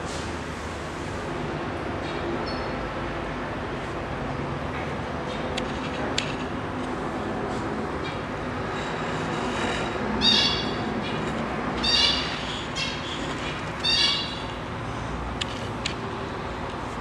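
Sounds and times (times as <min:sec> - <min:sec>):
high-pitched animal calls: 0:10.2 - 0:11.2, 0:11.8 - 0:13.2, 0:13.8 - 0:14.5.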